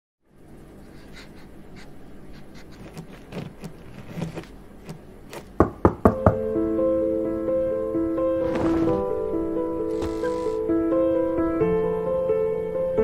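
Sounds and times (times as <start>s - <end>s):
pen writing on paper: 2.4s - 5.6s, 9.9s - 10.6s
sharp knocks: 4.9s - 6.4s.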